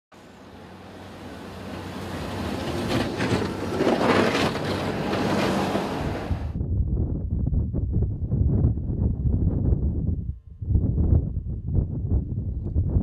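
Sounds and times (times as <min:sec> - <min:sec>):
diesel engine running: 0:00.2 - 0:06.6
snow rushing from plow blade: 0:00.2 - 0:06.6.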